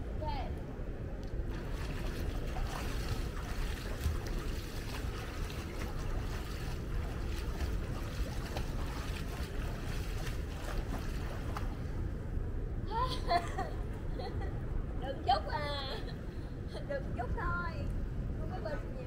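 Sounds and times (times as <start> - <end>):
wind buffeting microphone: 0.0 - 19.0
swimmer splashing in pool water: 1.5 - 11.8.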